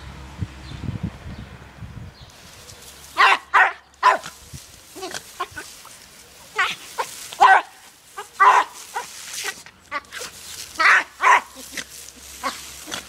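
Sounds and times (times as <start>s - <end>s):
dog yapping: 3.2s - 4.4s, 6.5s - 13.0s.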